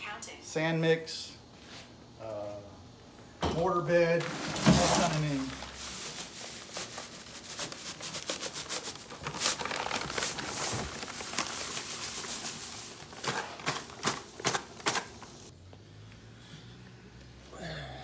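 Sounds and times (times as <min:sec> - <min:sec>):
sand pouring into wheelbarrow: 0:04.2 - 0:14.0
paper bag crackling: 0:04.2 - 0:15.5
paper bag rustling: 0:04.2 - 0:15.5.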